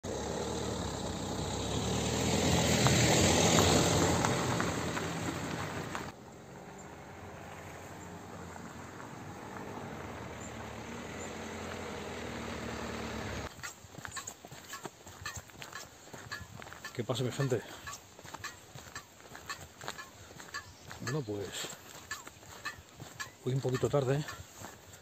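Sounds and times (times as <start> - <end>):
vehicle passing by: 0.0 - 13.5.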